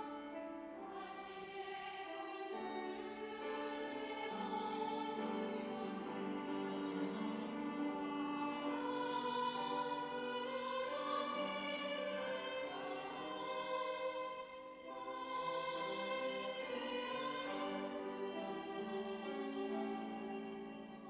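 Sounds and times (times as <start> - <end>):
mixed choir singing: 0.0 - 21.0.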